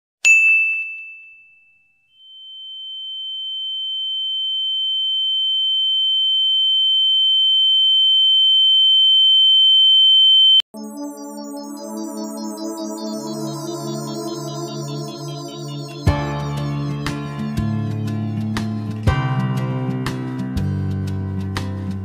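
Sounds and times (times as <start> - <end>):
high electronic tone: 10.2 - 17.9.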